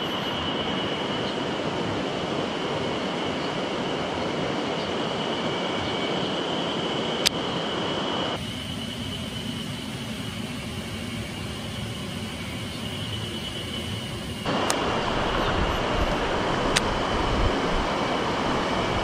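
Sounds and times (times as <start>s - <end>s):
river water rushing: 14.4s - 19.0s.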